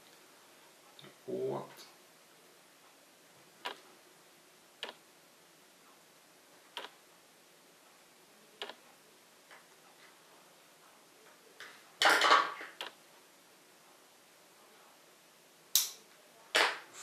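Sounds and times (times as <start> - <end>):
faint sharp clicks: 4.8 - 5.0, 15.7 - 16.1.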